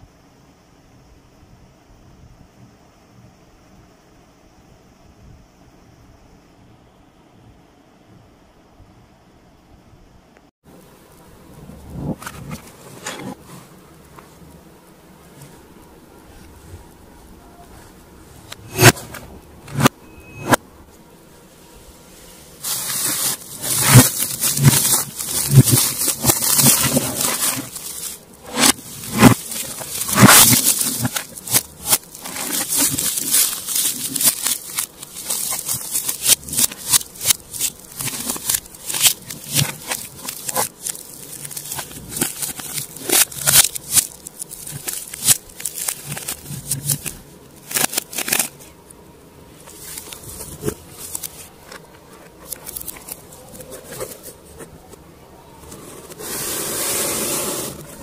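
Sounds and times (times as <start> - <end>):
plastic shrink wrap crinkling: 22.6 - 48.8, 49.6 - 54.7.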